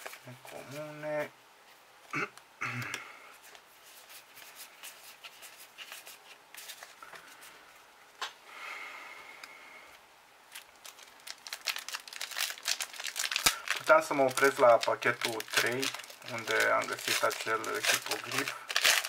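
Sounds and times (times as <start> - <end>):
foil pack crinkling: 10.5 - 19.0.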